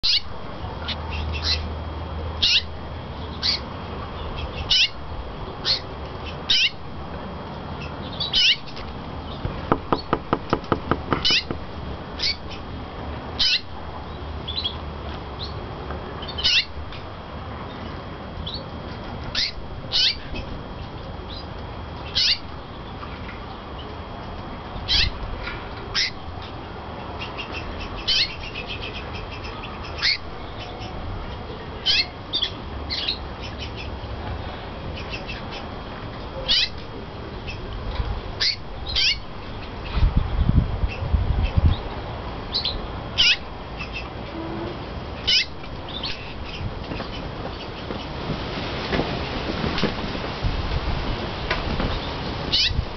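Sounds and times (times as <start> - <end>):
canary chirping: 7.8 - 11.6
canary trill: 7.8 - 12.6, 27.2 - 31.0, 36.4 - 36.8, 45.2 - 47.7.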